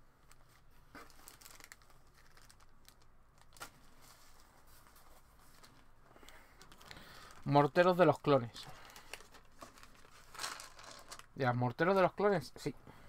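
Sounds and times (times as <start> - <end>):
plastic bags rustling: 0.2 - 11.5.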